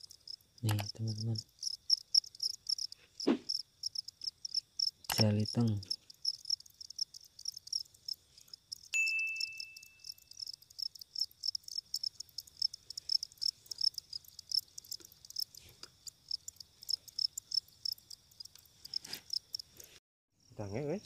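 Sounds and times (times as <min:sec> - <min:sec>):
crickets chirping: 0:00.0 - 0:21.0
bright ding: 0:08.9 - 0:10.3.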